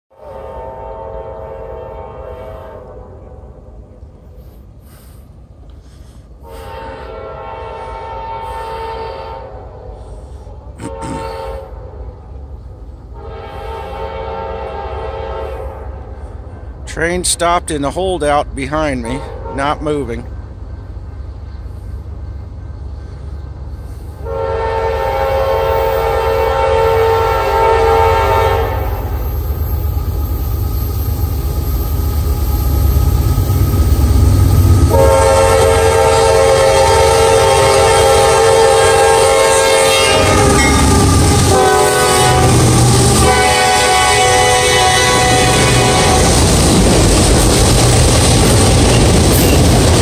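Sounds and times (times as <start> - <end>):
locomotive air horn: 0.1 - 3.7, 6.4 - 12.2, 13.1 - 16.4, 19.0 - 19.8, 24.2 - 29.4, 34.7 - 46.4
train rumble: 0.1 - 50.0.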